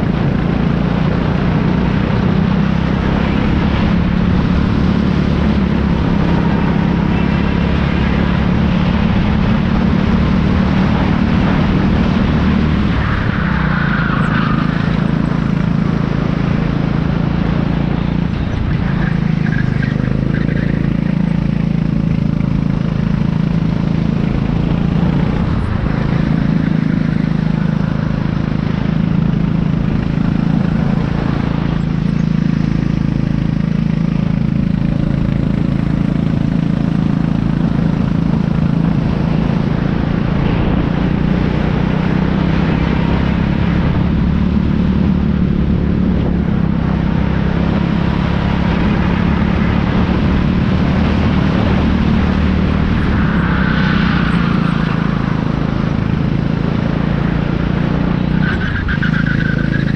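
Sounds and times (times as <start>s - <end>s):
racing kart engine: 0.0s - 59.9s.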